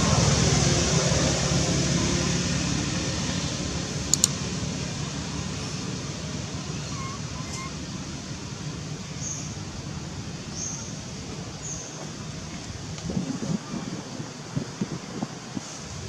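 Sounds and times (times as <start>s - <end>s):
passing vehicle engine drone: 0.0s - 9.0s
sharp clicks: 4.1s - 4.4s.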